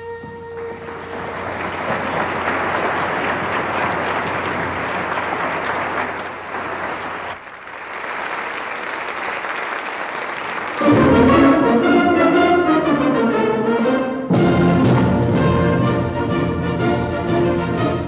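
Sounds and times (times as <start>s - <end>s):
held wind instrument note: 0.0s - 6.3s
audience applauding: 0.0s - 12.0s.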